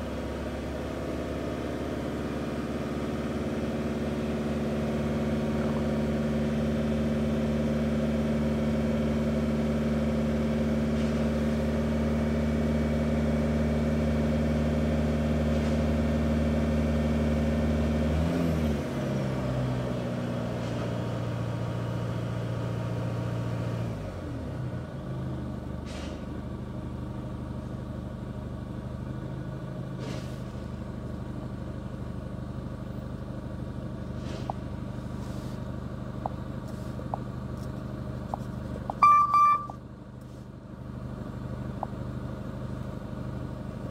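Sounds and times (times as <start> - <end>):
diesel engine running: 0.0 - 43.9.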